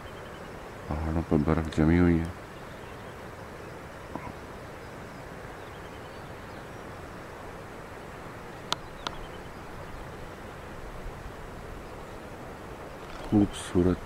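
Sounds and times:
outdoor background hiss: 0:00.0 - 0:14.0
sharp clicks: 0:13.0 - 0:13.4.

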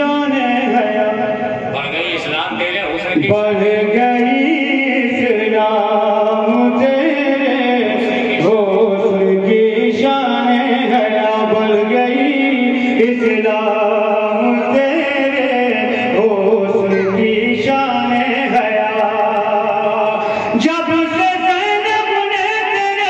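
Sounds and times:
man chanting over loudspeaker: 0:00.0 - 0:23.0.

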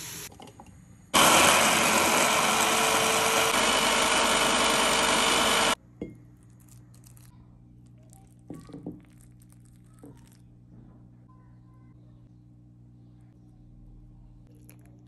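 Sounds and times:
hand blender running: 0:01.2 - 0:05.8.

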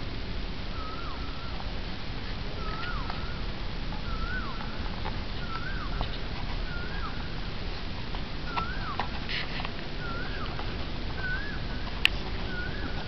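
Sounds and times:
steady low rumble: 0:00.0 - 0:13.0
faint clicks: 0:03.9 - 0:07.1, 0:07.8 - 0:13.0.

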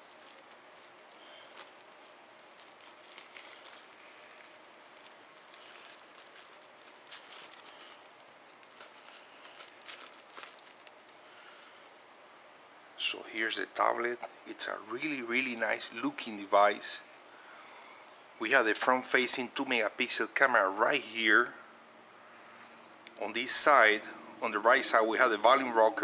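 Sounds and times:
plastic sleeve crinkling: 0:00.0 - 0:11.2.

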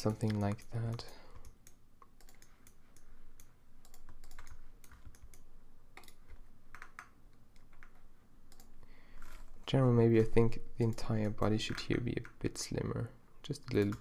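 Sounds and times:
computer keyboard keys tapping: 0:00.0 - 0:08.7, 0:13.6 - 0:14.0.

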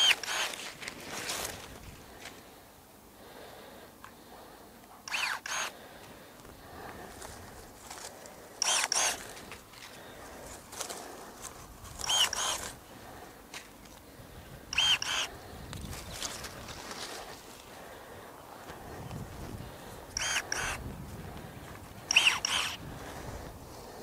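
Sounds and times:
pruning shears motor whirring: 0:00.0 - 0:01.7, 0:05.1 - 0:05.8, 0:08.6 - 0:09.6, 0:11.8 - 0:12.8, 0:14.7 - 0:15.4, 0:20.1 - 0:20.9, 0:22.0 - 0:23.2.

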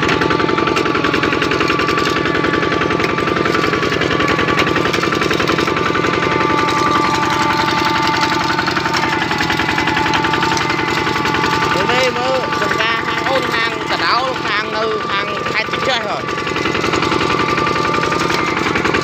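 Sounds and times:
diesel engine chugging: 0:00.0 - 0:19.0
high whine: 0:03.8 - 0:19.0.

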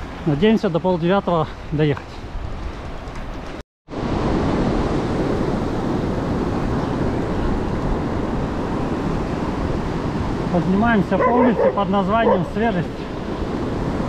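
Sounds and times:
wind buffeting microphone: 0:02.1 - 0:14.0.

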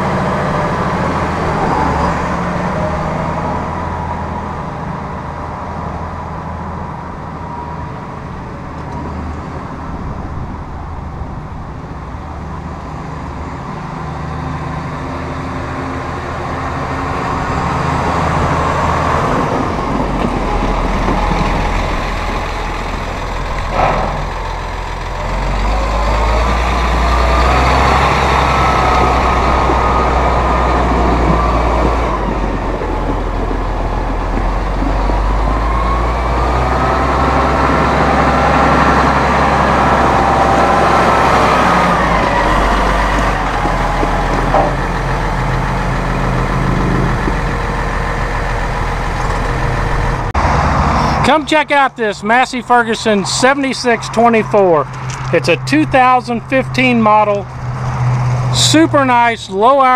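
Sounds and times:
tractor diesel engine: 0:00.0 - 0:59.9
rising whine: 0:13.3 - 0:51.3.

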